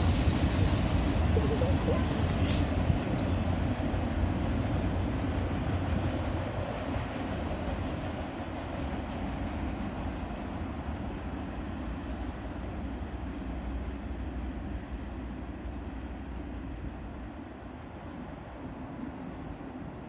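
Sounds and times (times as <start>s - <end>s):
high wheel squeal: 0.0s - 6.9s
train wheels rumbling on rails: 0.0s - 20.0s.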